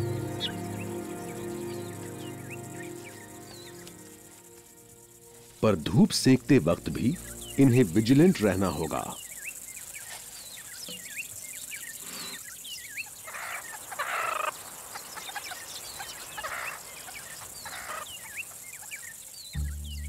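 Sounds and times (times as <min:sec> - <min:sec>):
high chirps and whistles: 0:00.0 - 0:05.3.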